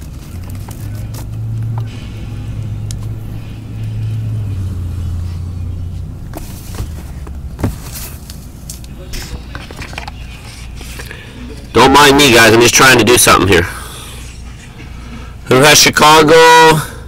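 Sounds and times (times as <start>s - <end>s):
low steady hum: 0.0s - 17.0s
cardboard case knocks and scuffs: 6.3s - 8.1s.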